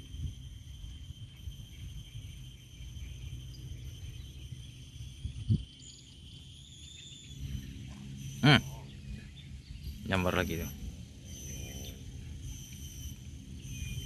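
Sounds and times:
wind rumble on microphone: 0.0 - 6.4
insects chirring: 0.0 - 14.0.

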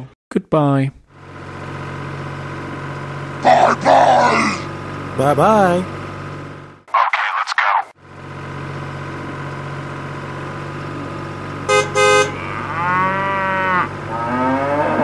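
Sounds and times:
tractor engine running: 1.1 - 6.9, 8.0 - 13.2, 13.9 - 14.2
horn tooting: 11.7 - 15.0
cow mooing: 11.9 - 15.0.

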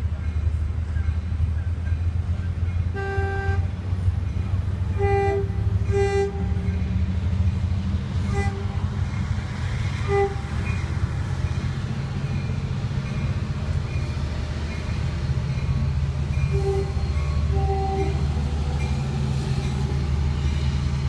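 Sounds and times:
diesel engine rumble: 0.0 - 21.0
train horn blasts: 2.9 - 3.8, 4.9 - 6.8, 8.2 - 9.0, 10.0 - 10.8, 16.5 - 18.4.

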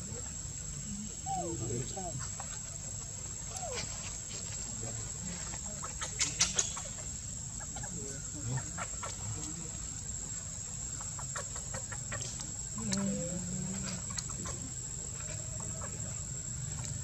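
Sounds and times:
monkey clucking calls: 1.0 - 10.0, 10.7 - 17.0.

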